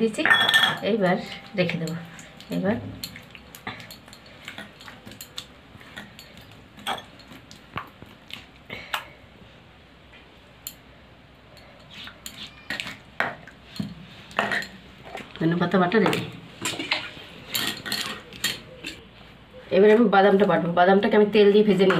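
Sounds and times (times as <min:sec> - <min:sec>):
steel bowl clinking: 0:00.0 - 0:07.7, 0:16.6 - 0:19.0.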